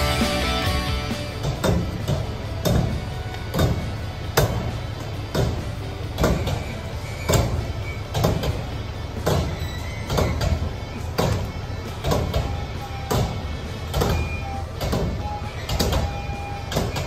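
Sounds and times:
rock music: 0.0s - 2.0s.

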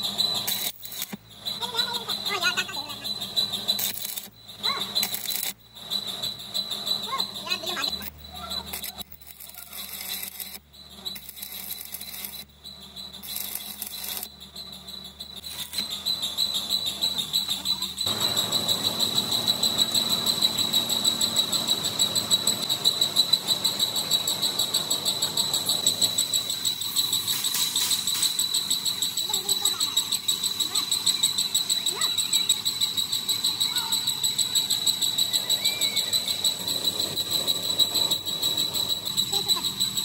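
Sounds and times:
high-pitched pulsing whine: 0.0s - 40.0s
lathe cutting steel: 18.1s - 26.4s.

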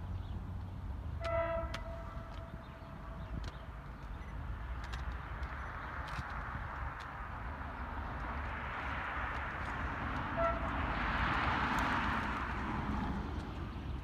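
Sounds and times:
traffic rumble: 0.0s - 14.0s
car horn toot: 1.2s - 2.5s, 10.2s - 10.8s.

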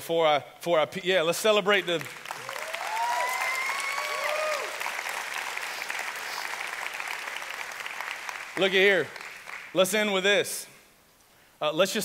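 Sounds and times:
congregation applauding: 1.6s - 9.9s
people whooping: 2.4s - 5.0s.

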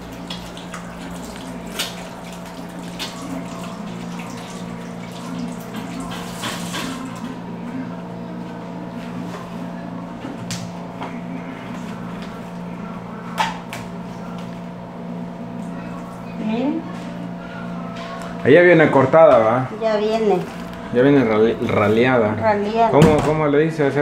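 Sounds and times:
hands washing under water: 0.0s - 7.2s.

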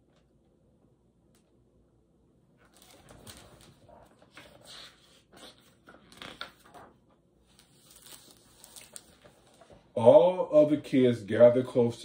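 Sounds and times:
rustling of paper pages: 2.6s - 10.0s.

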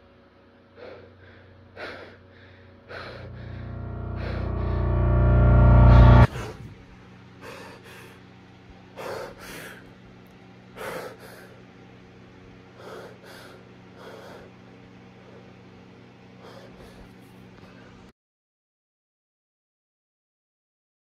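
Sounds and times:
faint steady hum: 0.0s - 18.1s
young man breathing heavily: 0.7s - 3.4s, 7.4s - 8.3s, 8.9s - 10.0s, 10.8s - 11.7s, 12.7s - 14.6s, 16.4s - 18.0s
loud music swell: 2.9s - 6.7s.

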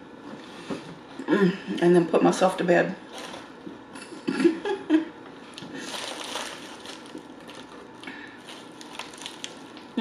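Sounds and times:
aluminium foil crinkling: 5.5s - 10.0s.

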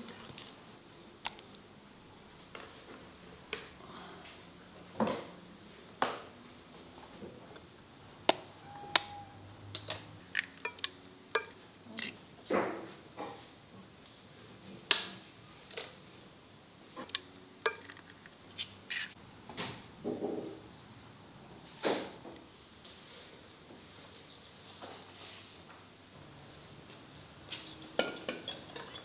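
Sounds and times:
bowls and utensils clinking: 10.4s - 12.2s, 17.0s - 18.3s, 27.6s - 29.0s.

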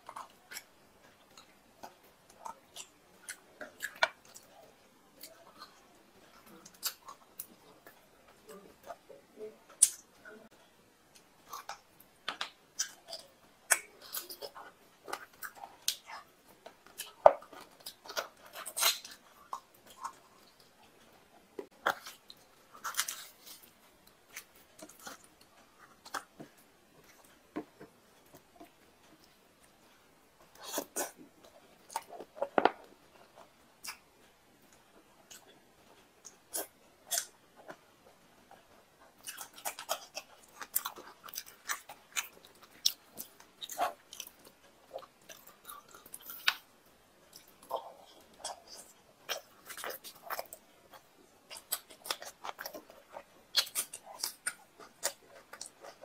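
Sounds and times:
person chewing food: 0.0s - 56.0s.

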